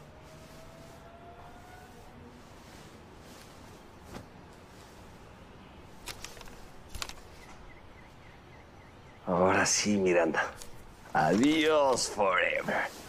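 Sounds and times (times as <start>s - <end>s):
paper rustling and crinkling: 6.0s - 7.5s, 10.5s - 13.0s.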